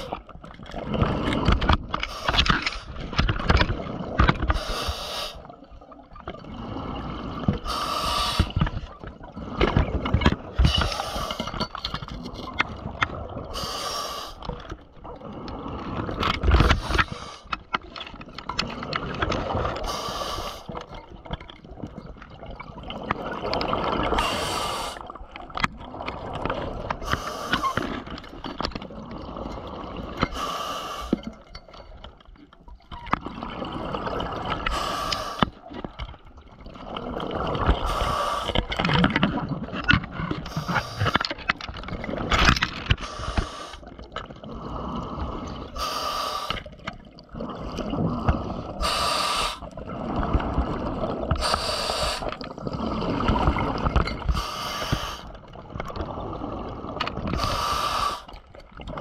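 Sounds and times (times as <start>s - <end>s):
exhaled bubbles gurgling: 0.0s - 59.0s
diver breathing through regulator: 4.5s - 5.5s, 6.8s - 8.7s, 10.6s - 11.6s, 13.5s - 14.5s, 15.3s - 17.5s, 19.8s - 20.8s, 24.1s - 25.1s, 27.0s - 28.0s, 30.3s - 31.2s, 34.6s - 35.7s, 37.7s - 38.8s, 43.0s - 43.9s, 44.5s - 46.7s, 47.6s - 49.7s, 51.3s - 53.5s, 54.2s - 55.4s, 57.3s - 58.4s.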